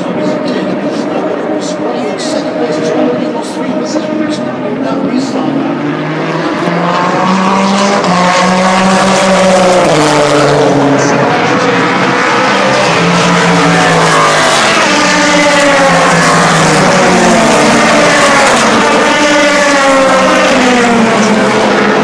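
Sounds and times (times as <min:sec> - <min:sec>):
racing car engines at high revs: 0:00.0 - 0:22.0.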